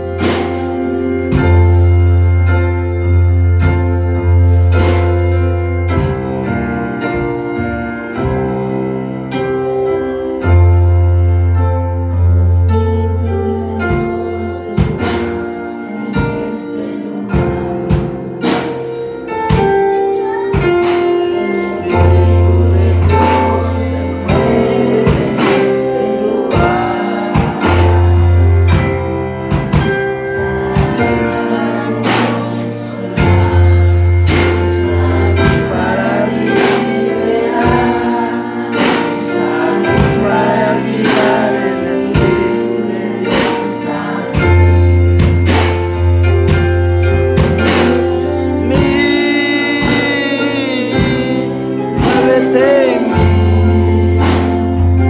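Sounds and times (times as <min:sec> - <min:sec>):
drum kit hits: 0:00.0 - 0:08.8, 0:10.6 - 0:55.0
church band through speakers: 0:00.0 - 0:55.0
keyboards with deep bass: 0:00.0 - 0:55.0
person singing: 0:12.2 - 0:18.7, 0:19.5 - 0:29.0, 0:47.6 - 0:55.0.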